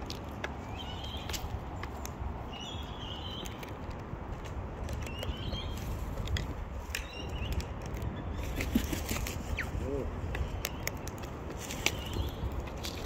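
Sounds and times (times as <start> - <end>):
beaks pecking seed on plastic: 10.2 - 13.0.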